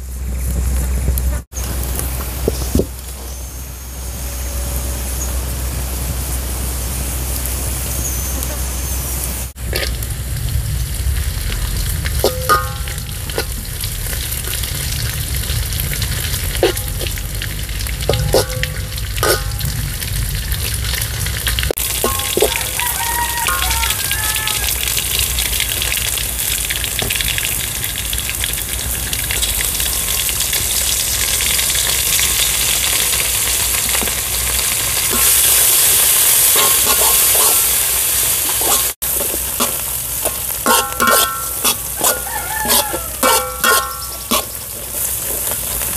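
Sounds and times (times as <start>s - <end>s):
food sizzling in oil: 1.5s - 45.9s
metal spatula clicking on wok: 18.1s - 19.7s, 40.7s - 44.5s.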